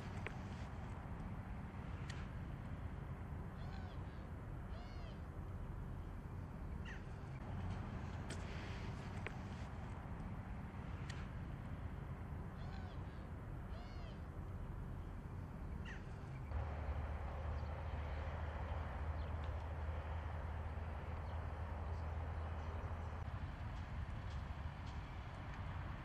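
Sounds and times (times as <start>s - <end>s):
animal calls: 3.5s - 5.2s, 12.5s - 14.3s.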